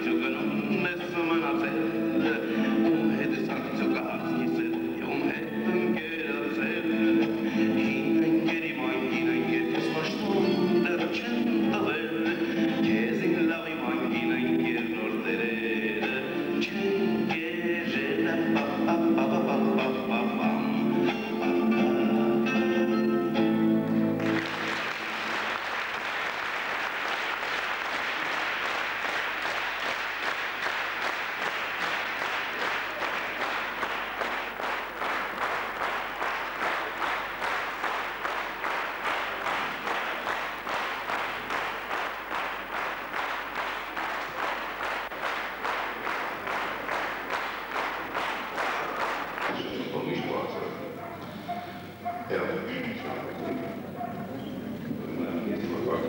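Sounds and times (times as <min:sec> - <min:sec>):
rhythmic clapping in unison: 0:00.0 - 0:21.8, 0:23.4 - 0:50.0
person singing: 0:00.0 - 0:23.9
classical guitar: 0:00.0 - 0:24.6
audience applause: 0:23.8 - 0:50.2.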